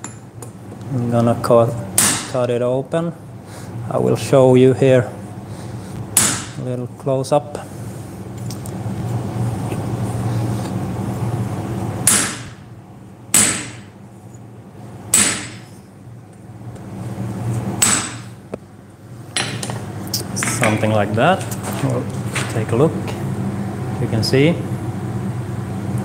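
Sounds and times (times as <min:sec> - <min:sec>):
steady low hum: 0:00.0 - 0:26.0
hammer striking chisel: 0:02.0 - 0:02.4, 0:06.2 - 0:06.6, 0:12.0 - 0:12.6, 0:13.3 - 0:13.9, 0:15.1 - 0:15.7, 0:17.8 - 0:18.3.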